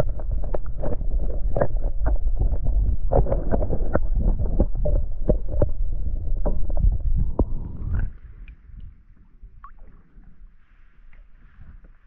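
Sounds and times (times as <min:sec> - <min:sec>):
clicks and knocks on hull: 0:00.0 - 0:07.6
muffled underwater rush: 0:00.0 - 0:12.0.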